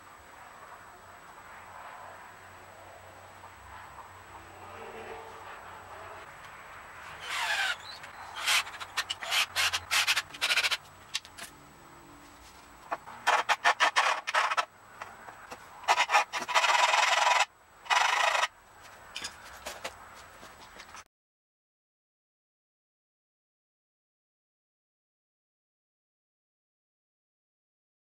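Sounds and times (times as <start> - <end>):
harsh scraping tool bursts on wood: 7.0 - 10.9, 13.0 - 14.7, 15.8 - 18.5.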